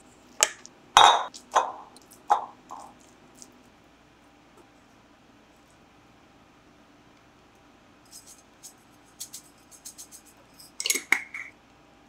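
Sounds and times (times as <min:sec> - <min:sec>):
glass jar clinking: 0:01.0 - 0:01.7.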